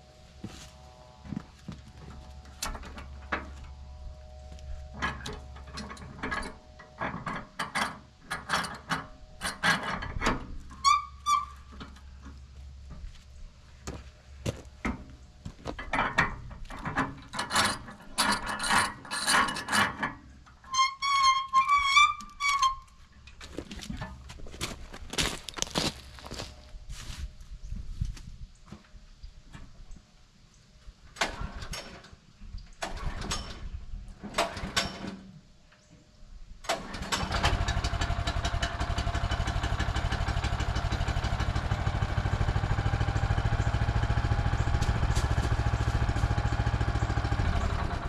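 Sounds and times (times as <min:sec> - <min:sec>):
steel clicks clanks and ratcheting: 0:05.0 - 0:12.4, 0:15.7 - 0:23.4.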